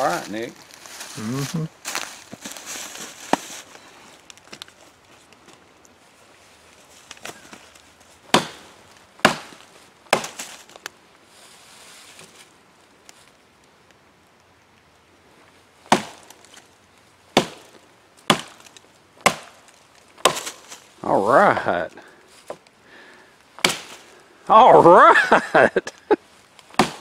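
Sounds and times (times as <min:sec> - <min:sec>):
blade chopping into wood: 0:08.3 - 0:08.6, 0:09.2 - 0:10.5, 0:15.9 - 0:16.2, 0:17.4 - 0:17.7, 0:18.3 - 0:19.6, 0:20.2 - 0:20.6, 0:23.6 - 0:24.0, 0:26.7 - 0:27.0.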